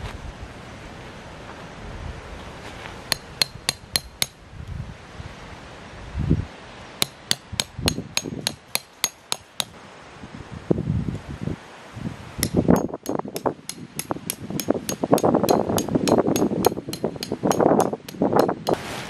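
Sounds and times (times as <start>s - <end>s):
hammer driving tent pegs: 3.1s - 4.4s, 7.0s - 9.7s, 12.4s - 18.8s.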